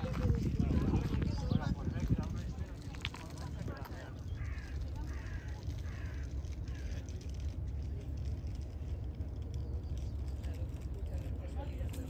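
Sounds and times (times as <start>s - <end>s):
steady low rumble: 0.0s - 12.0s
crow cawing: 4.3s - 7.0s.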